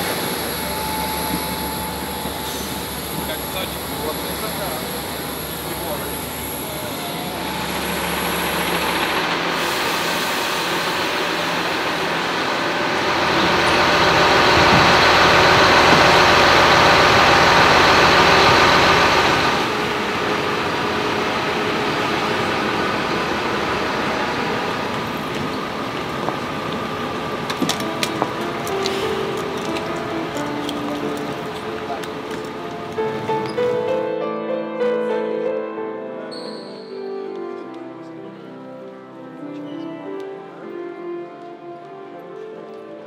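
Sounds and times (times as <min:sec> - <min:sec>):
diesel bus engine idling: 0:00.0 - 0:33.4.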